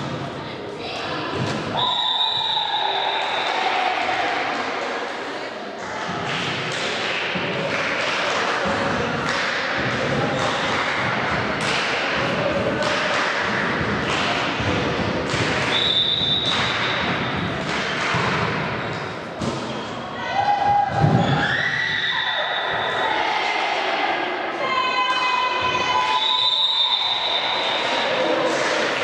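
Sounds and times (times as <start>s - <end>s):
echoing thuds in hall: 0.0s - 5.0s, 5.8s - 23.1s.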